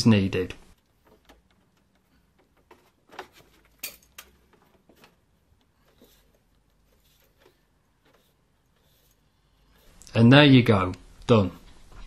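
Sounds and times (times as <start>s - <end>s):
faint knocks and clicks: 0.5s - 8.3s.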